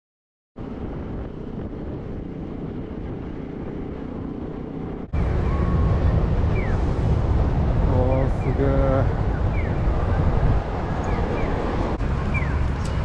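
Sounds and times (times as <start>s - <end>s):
wind and road noise: 0.6s - 13.0s
busy street noise: 5.1s - 13.0s.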